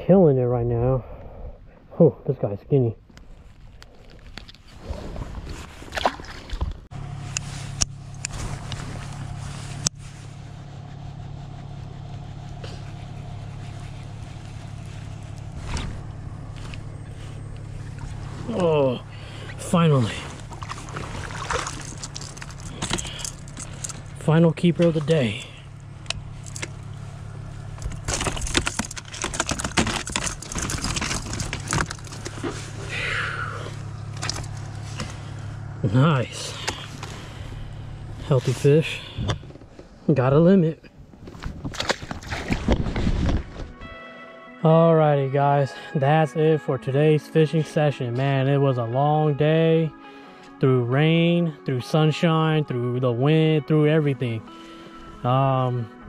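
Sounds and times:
small boat motor humming: 3.0 - 44.0, 49.3 - 56.0
fish splashing into water: 20.4 - 22.5, 41.7 - 42.8
fish and lure rattling on plastic crate: 20.4 - 24.1, 27.8 - 32.6, 41.2 - 43.6.

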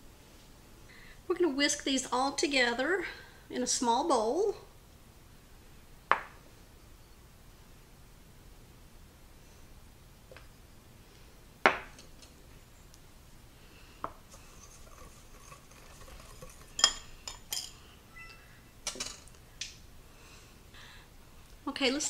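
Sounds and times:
utensil scraping glass bowl: 14.3 - 17.8.

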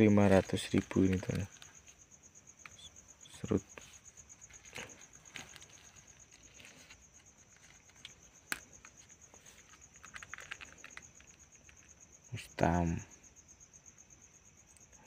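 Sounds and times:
insect trilling: 0.0 - 15.0
handling rustles and clicks: 0.2 - 2.0, 2.6 - 12.0.

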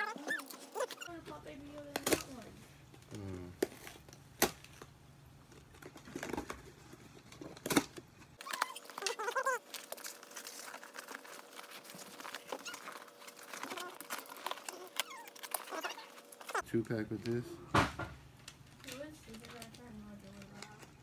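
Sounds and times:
cardboard scraping and crinkling: 8.4 - 16.6.

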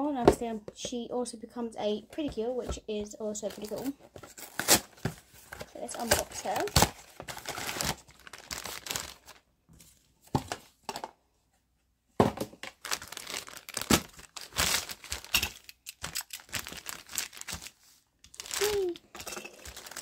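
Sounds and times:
plastic bag crinkling: 3.4 - 9.4, 12.6 - 20.0.

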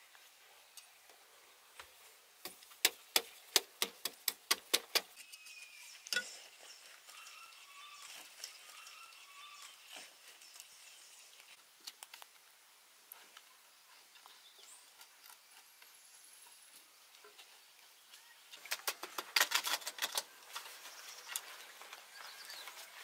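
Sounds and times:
faint bird chirps: 5.2 - 11.6.

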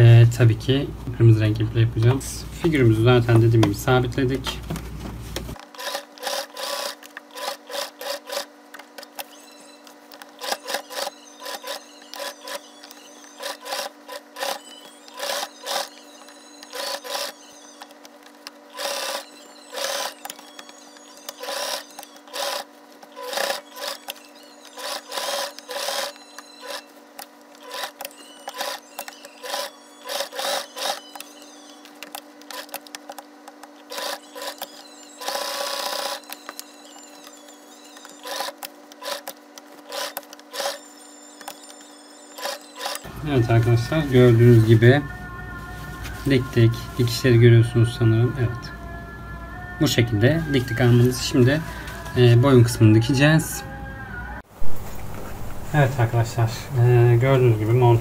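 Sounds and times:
sewing machine stitching: 5.6 - 8.5, 10.4 - 16.0, 16.6 - 17.4, 18.7 - 20.6, 21.2 - 26.9, 27.6 - 31.3, 32.5 - 32.9, 33.8 - 37.2, 38.0 - 41.7, 42.3 - 43.1.

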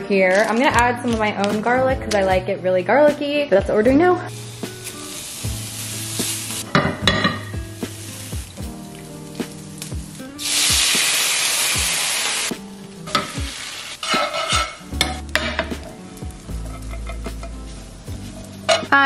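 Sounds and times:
garlic sizzling in oil: 4.3 - 19.0
metal utensil scraping pan: 14.0 - 15.6, 16.6 - 17.5.

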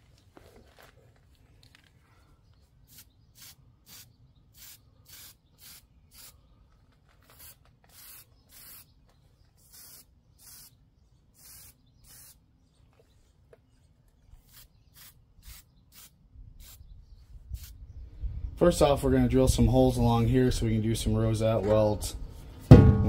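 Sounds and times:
aerosol spray hissing: 2.8 - 6.4, 7.3 - 8.9, 9.6 - 10.8, 11.4 - 12.4, 14.5 - 16.8, 17.6 - 17.8.

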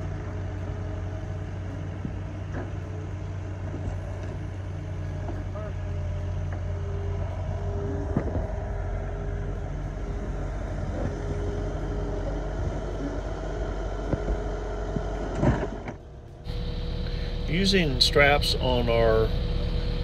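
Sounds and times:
diesel engine running: 0.0 - 20.0.

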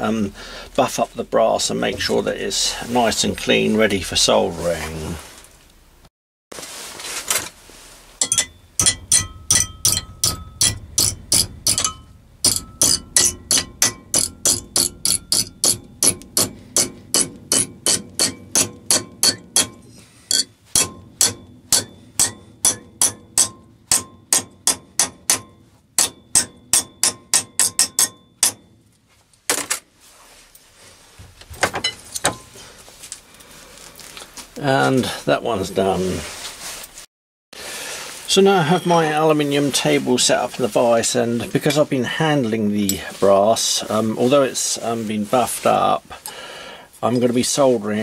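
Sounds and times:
hammer tapping on metal: 8.2 - 28.7.

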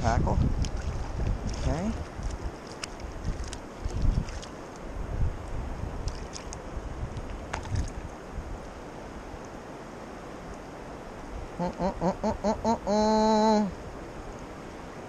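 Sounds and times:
rushing river water: 0.0 - 15.0
wind: 0.0 - 15.0
person vocalizing without words: 11.6 - 13.8.

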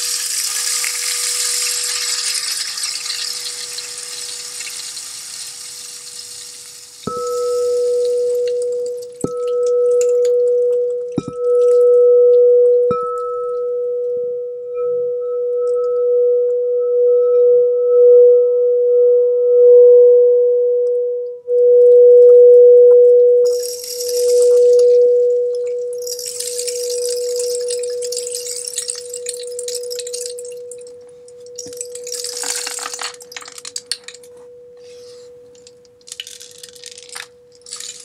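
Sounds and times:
rain stick hiss: 0.0 - 9.5, 23.5 - 38.0
singing bowl ringing: 7.0 - 38.0.

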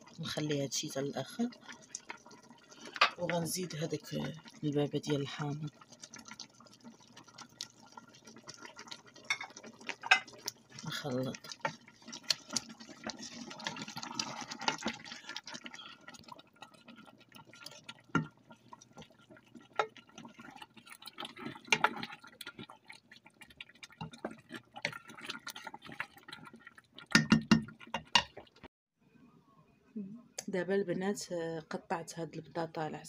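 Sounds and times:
wet cooking sauce sounds: 0.0 - 28.7
spoon knocking against pot: 27.1 - 28.4.

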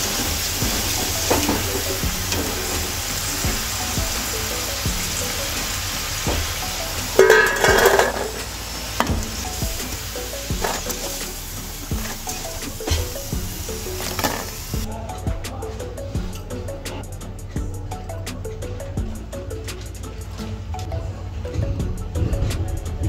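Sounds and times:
hot oil sizzling: 0.0 - 14.9
wire skimmer clicking on pan: 7.2 - 9.1
potatoes clattering onto steel plate: 7.2 - 9.2, 10.6 - 11.2, 14.0 - 14.6.

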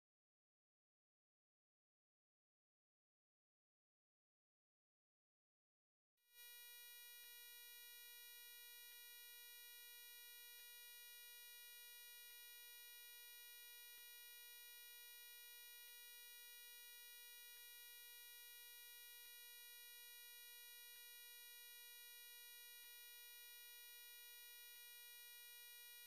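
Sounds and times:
faint electronic buzzing tone: 6.4 - 26.0.

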